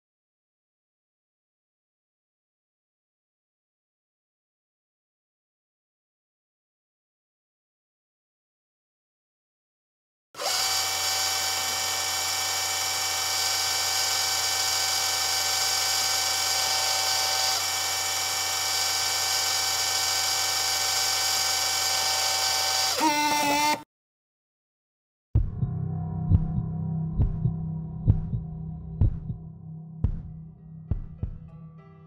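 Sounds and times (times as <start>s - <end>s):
steady mechanical buzz: 10.4s - 23.8s.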